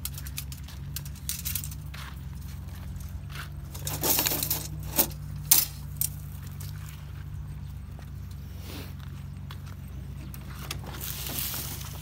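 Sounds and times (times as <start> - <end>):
metallic clinks and rattles: 0.0 - 1.9, 2.9 - 6.6
motorcycle engine idling: 0.0 - 12.0.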